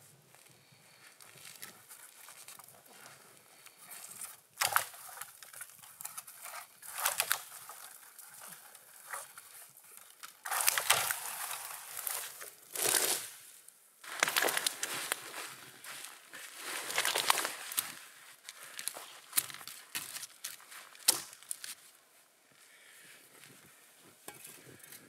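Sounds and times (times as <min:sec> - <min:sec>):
wood cracking: 0:03.6 - 0:13.3, 0:14.1 - 0:15.3, 0:16.6 - 0:21.9
tree trunk tipping over: 0:10.0 - 0:13.2
snow crunching: 0:10.5 - 0:21.9.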